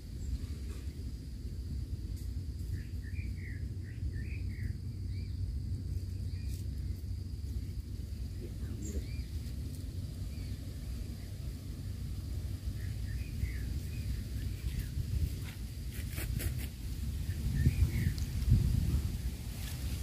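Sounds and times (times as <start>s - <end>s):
low rumble: 0.0s - 15.9s
high insect drone: 0.0s - 20.0s
birds chirping: 2.6s - 15.6s, 17.2s - 19.1s.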